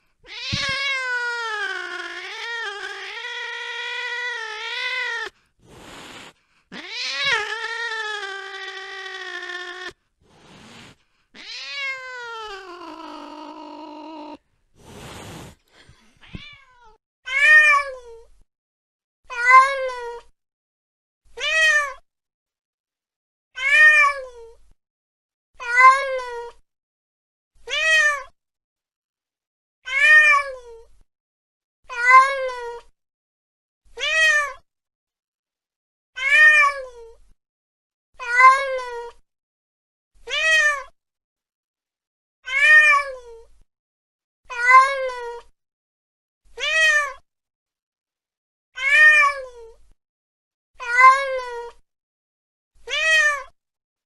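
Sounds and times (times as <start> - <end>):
cat meowing: 0.2 - 5.4, 6.7 - 10.0, 11.4 - 14.4, 16.2 - 18.0, 29.9 - 30.6, 34.0 - 34.6, 36.2 - 36.9, 40.3 - 40.9, 42.5 - 43.2, 44.5 - 45.3, 46.6 - 47.2, 48.8 - 49.5, 50.8 - 51.6, 52.9 - 53.5.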